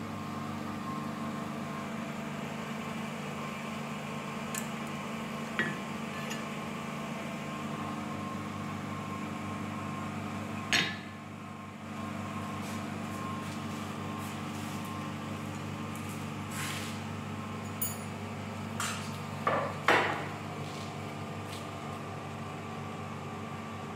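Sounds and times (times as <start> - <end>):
workshop hum: 0.0 - 23.9
metal tools clanking on anvil: 5.6 - 6.5, 17.6 - 18.2.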